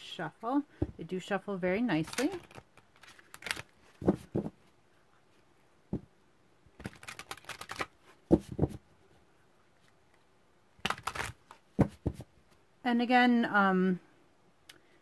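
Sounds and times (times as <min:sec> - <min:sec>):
cards being shuffled: 0:02.0 - 0:04.6, 0:06.8 - 0:08.8, 0:10.8 - 0:12.3.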